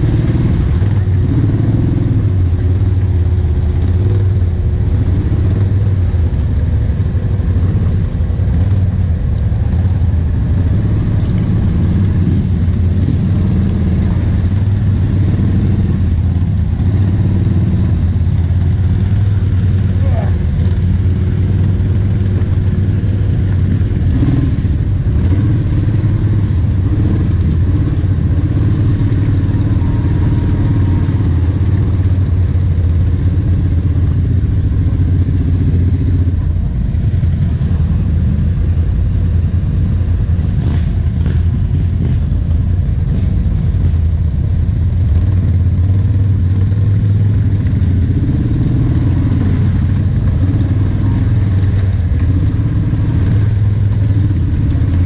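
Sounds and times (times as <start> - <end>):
quad engine running at low revs: 0.0 - 55.0.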